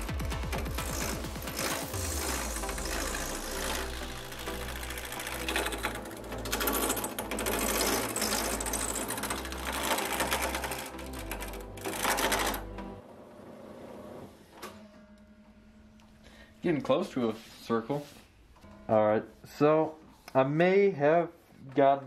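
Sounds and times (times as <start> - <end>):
lathe gouge scraping wood: 0.8 - 11.2.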